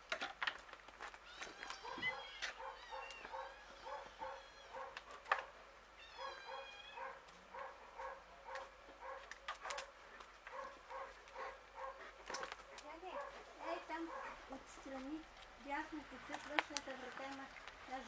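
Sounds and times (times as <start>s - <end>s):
dog barking faintly: 1.8s - 5.6s, 6.2s - 14.5s.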